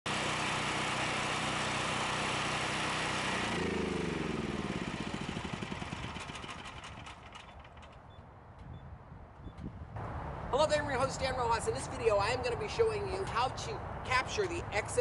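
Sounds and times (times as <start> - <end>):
generator engine running: 0.1 - 8.2.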